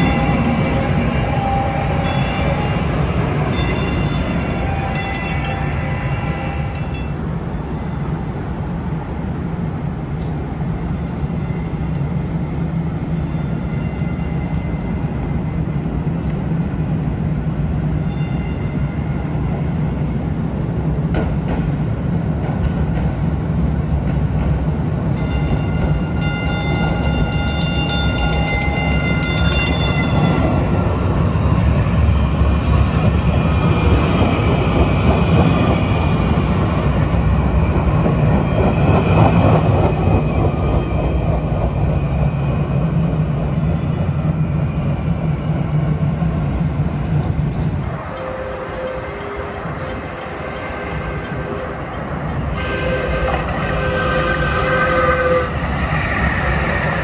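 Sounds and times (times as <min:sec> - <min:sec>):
trains rumbling past: 0:00.0 - 0:57.0.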